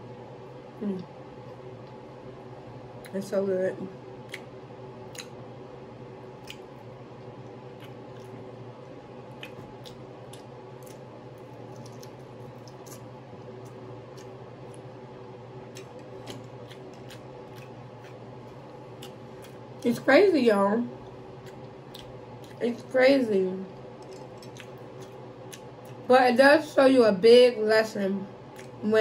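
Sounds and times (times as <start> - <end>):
steady low hum: 0.0 - 29.0
chewing and wet mouth sounds: 4.2 - 5.5, 6.2 - 20.0, 20.9 - 22.9, 23.7 - 26.1, 28.4 - 29.0.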